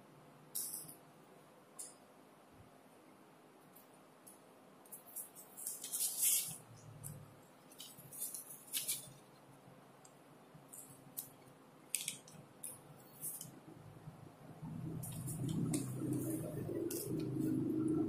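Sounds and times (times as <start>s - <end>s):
paper strips crinkling: 4.9s - 9.4s, 10.8s - 13.6s.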